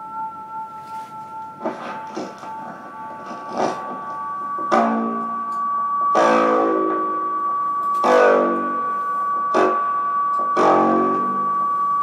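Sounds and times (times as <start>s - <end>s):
chords ringing out: 0.0s - 11.5s
high held tone: 0.0s - 12.0s.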